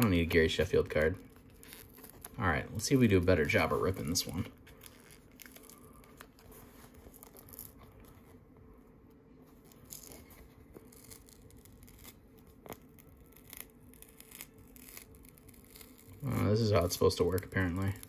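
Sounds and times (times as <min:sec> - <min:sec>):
card paper tearing: 0:09.7 - 0:18.0.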